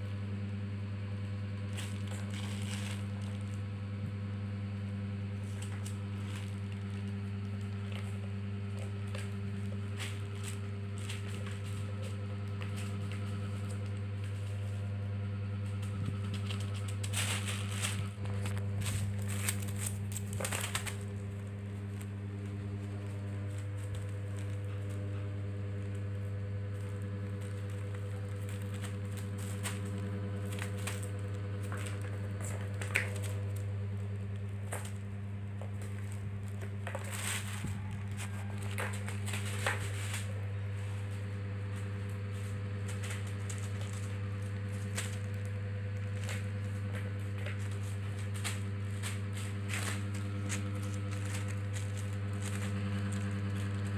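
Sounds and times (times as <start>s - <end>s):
low hum: 0.0s - 53.9s
rustling on plastic sheet: 1.4s - 4.2s, 5.2s - 53.9s.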